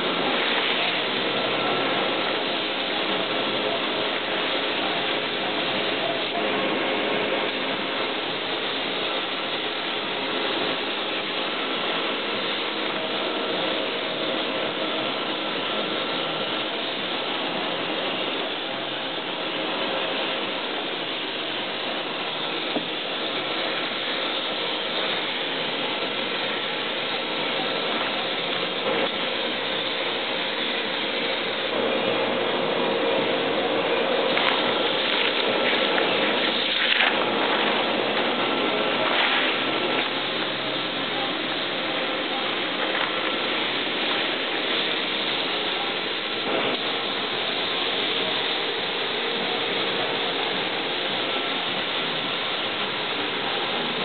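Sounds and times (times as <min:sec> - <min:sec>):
machinery drone with hiss: 0:00.0 - 0:54.0.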